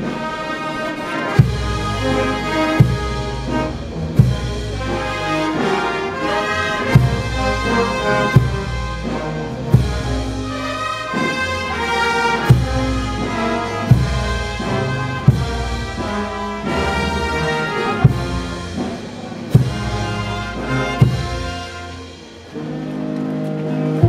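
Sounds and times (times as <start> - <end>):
brass band playing a march: 0.0 - 24.0
bass drum strokes: 12.4 - 21.7.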